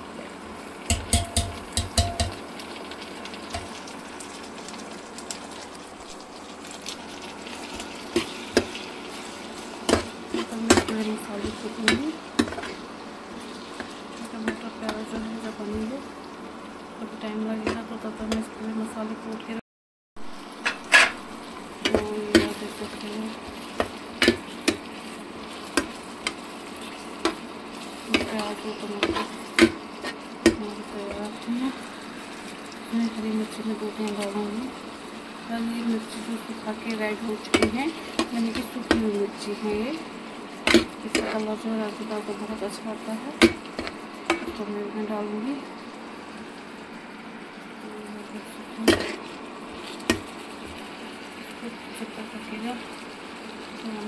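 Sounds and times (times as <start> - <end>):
vegetables sizzling in oil: 0.0 - 19.6, 20.2 - 54.0
ladle knocking and scraping pan: 0.9 - 2.4, 9.9 - 12.8
metal ladle knocking pan: 0.9 - 2.4, 37.5 - 39.1, 40.7 - 41.3.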